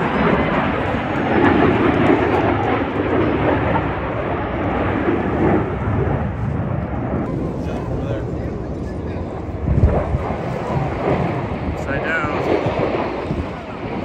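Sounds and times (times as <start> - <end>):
aircraft engine roar: 0.0 - 14.0.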